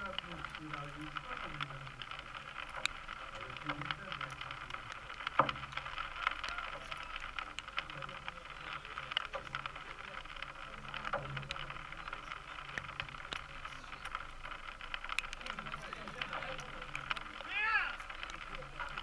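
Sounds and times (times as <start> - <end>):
faint scattered clicks: 0.0 - 19.0.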